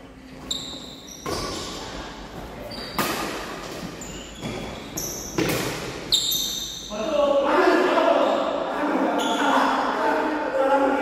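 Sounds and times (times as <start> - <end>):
shoe squeaks on court floor: 0.3 - 6.9
racket hitting shuttlecock: 5.3 - 6.1.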